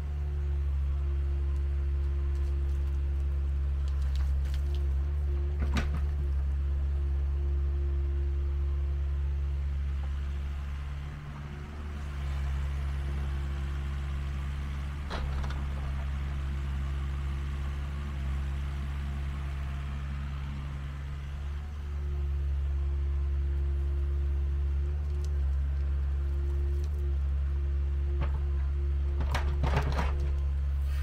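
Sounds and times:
diesel engine running: 0.0s - 31.0s.

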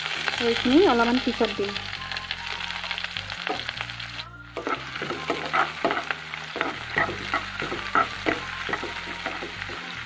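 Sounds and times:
onions sizzling in hot oil: 0.0s - 10.0s
spatula scraping and tapping pan: 4.6s - 10.0s.

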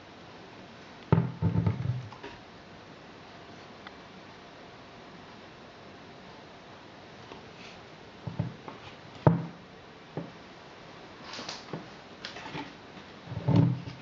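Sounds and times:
wooden lamp knocks: 1.1s - 2.1s, 9.3s - 9.5s.

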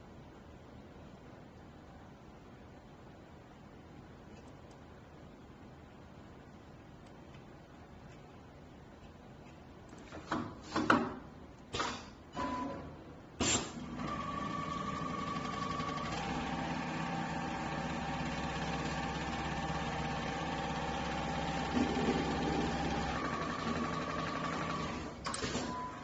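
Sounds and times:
sewing machine running: 13.8s - 25.8s.

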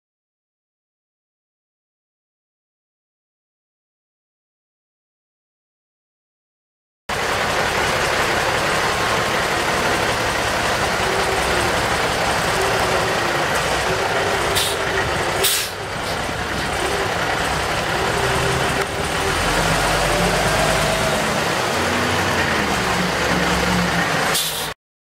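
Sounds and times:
diesel truck engine running: 7.1s - 24.8s
air brake hisses: 14.6s - 14.8s, 15.4s - 15.8s, 24.3s - 24.8s.

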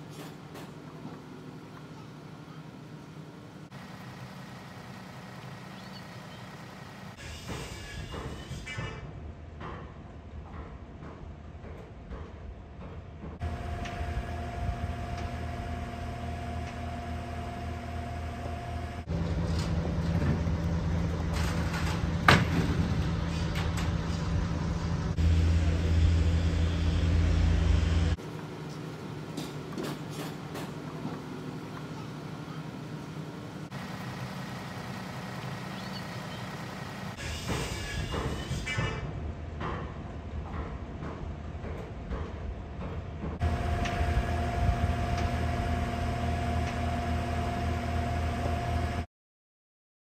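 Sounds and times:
machine engine humming: 13.4s - 37.3s, 43.4s - 49.1s.

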